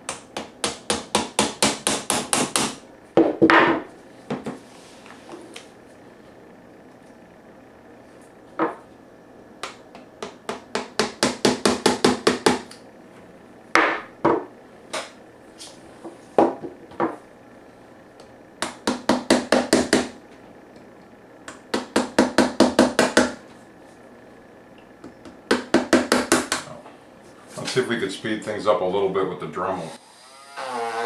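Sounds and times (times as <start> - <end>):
hard hammer knocks: 0.1 - 4.5, 10.2 - 12.7, 18.6 - 20.1.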